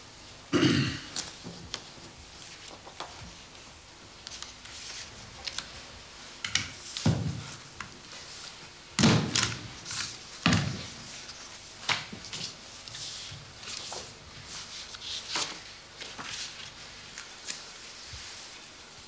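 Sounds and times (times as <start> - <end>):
paper rustling: 1.2 - 5.9, 9.2 - 18.6.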